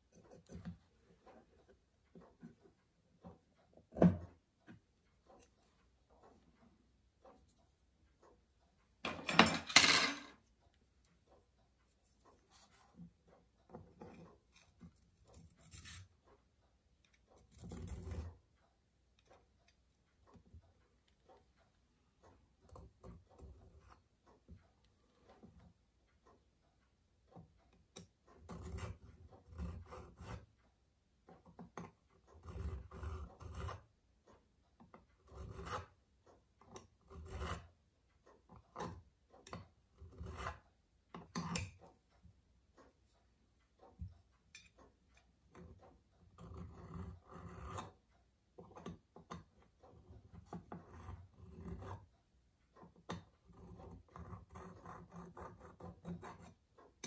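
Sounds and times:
file stroking metal edge: 13.9s - 16.1s, 28.4s - 30.5s, 31.8s - 33.8s, 35.2s - 36.0s, 36.8s - 37.7s, 38.6s - 40.6s, 46.4s - 48.0s, 49.9s - 52.1s.

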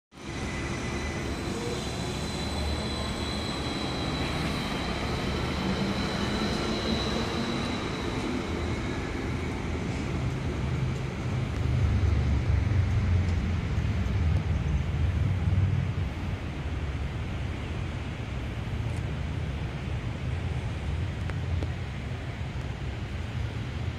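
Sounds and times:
tram rumbling with high whine: 0.1s - 23.9s.

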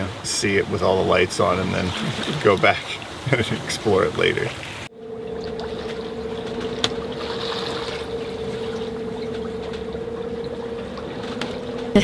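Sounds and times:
water washing along hull: 0.0s - 12.0s
wind: 0.0s - 12.0s
electric motor humming: 4.9s - 12.0s.

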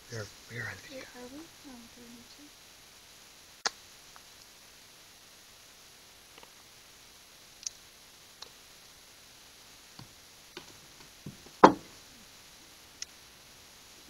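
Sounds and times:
knock on table: 11.3s - 11.9s.

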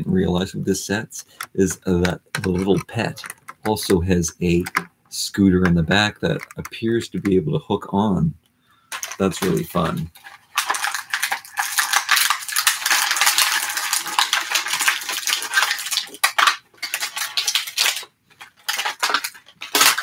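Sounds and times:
plastic packaging crinkling: 1.2s - 4.9s, 5.6s - 7.4s, 8.9s - 20.0s.

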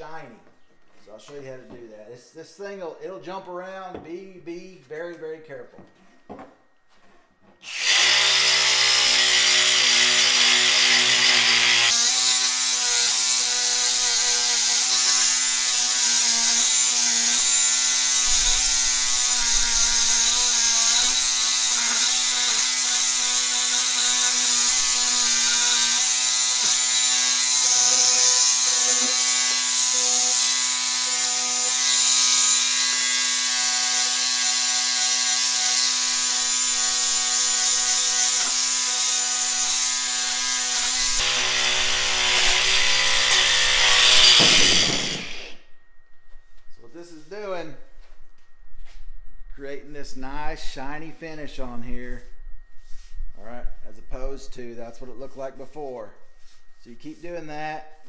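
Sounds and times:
angle grinder with cup brush: 7.6s - 45.6s.

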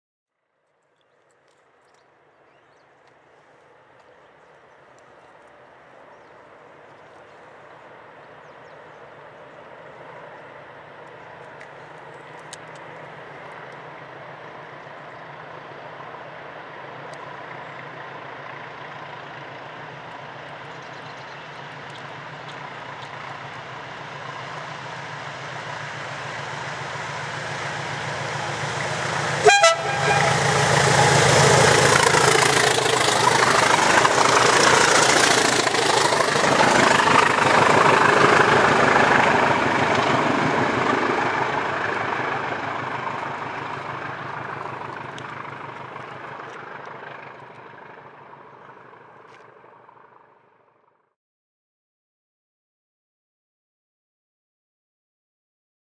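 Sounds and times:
diesel locomotive engines thrashing: 9.3s - 50.3s
train horn blast: 28.2s - 31.8s.

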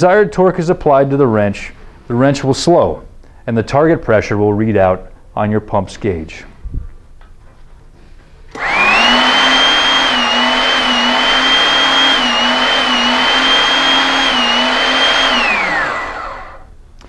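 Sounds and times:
hydraulic pump whining hum: 8.5s - 16.8s.

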